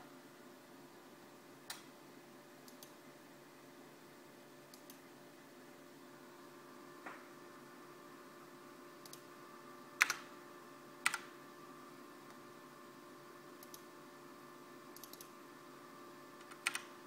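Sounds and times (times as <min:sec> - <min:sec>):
faint steady hum: 0:00.0 - 0:17.0
keyboard keystrokes: 0:10.0 - 0:10.2, 0:16.4 - 0:16.9.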